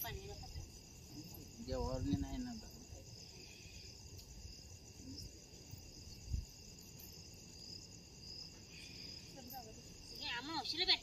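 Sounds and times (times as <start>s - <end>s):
crickets chirping: 0.0s - 11.0s.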